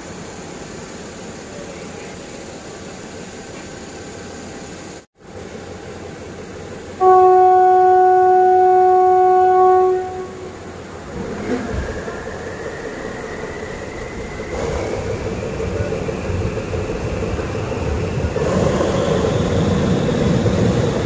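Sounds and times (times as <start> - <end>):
moving train running noise: 0.0 - 21.0
train air horn: 7.0 - 10.8.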